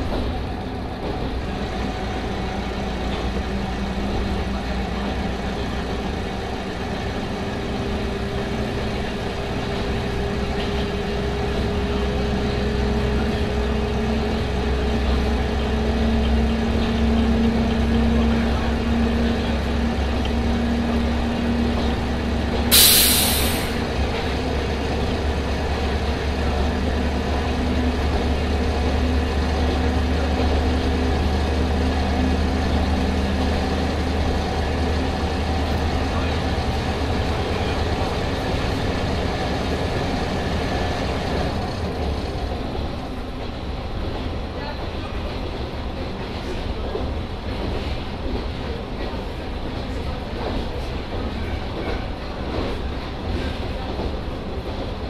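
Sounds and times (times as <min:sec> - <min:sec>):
diesel railcar engine droning: 0:00.0 - 0:55.0
compressed air hiss: 0:22.7 - 0:23.8.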